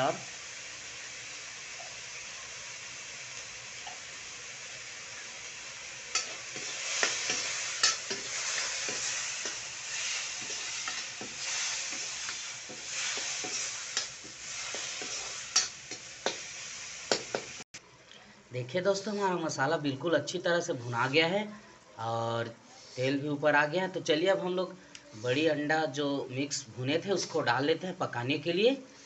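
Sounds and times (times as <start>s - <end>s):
masala sizzling in oil: 0.0s - 17.7s.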